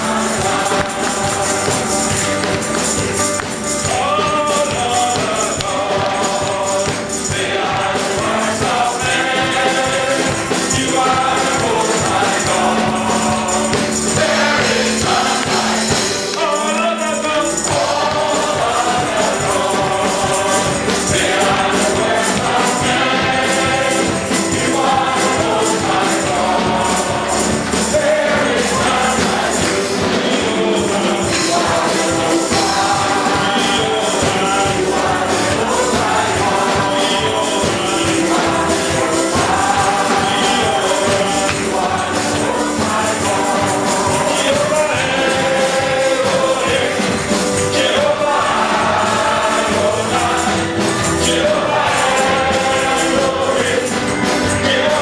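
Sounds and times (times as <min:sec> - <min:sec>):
jingling percussion: 0:00.0 - 0:55.0
live band: 0:00.0 - 0:55.0
men's choir singing in harmony: 0:00.0 - 0:55.0.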